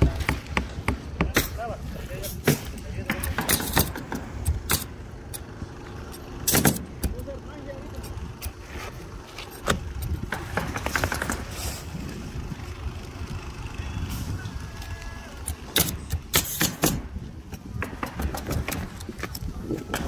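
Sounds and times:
steady low rumble: 0.5 - 20.0
roofing knocks and clicks: 9.6 - 11.6, 15.4 - 20.0.

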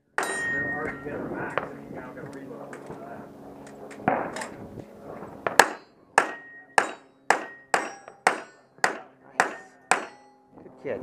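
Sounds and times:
pistol shots with ringing echo: 5.4 - 10.4.

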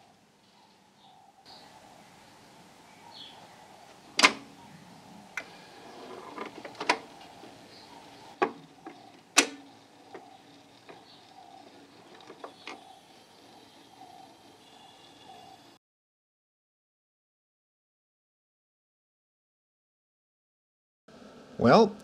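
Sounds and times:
faint steady hum: 0.0 - 15.8
turntable tonearm clicks and clunks: 4.1 - 4.5, 6.2 - 13.6.

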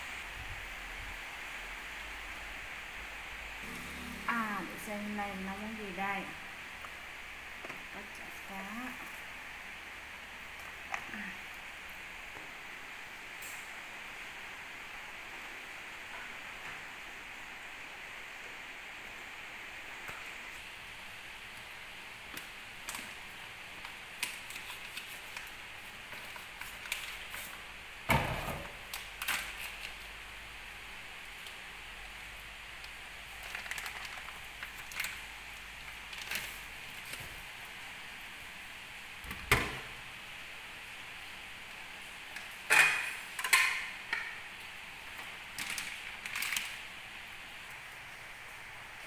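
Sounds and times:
background hiss: 0.0 - 49.0
plastic bag crinkling: 33.3 - 37.2, 45.2 - 46.9.

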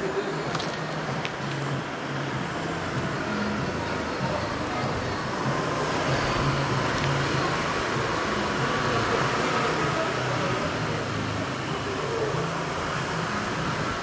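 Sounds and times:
city street traffic: 0.0 - 14.0
vehicle engine humming nearby: 0.0 - 14.0.

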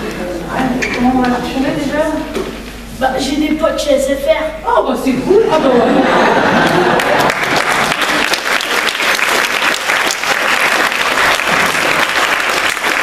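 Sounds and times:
dialogue: 0.0 - 7.0
audience applauding: 6.3 - 13.0.

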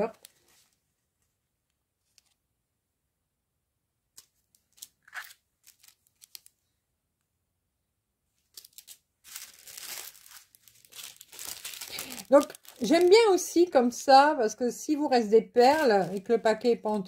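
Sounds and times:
plastic packets crinkling: 4.2 - 6.6, 8.4 - 13.6, 15.6 - 16.6.

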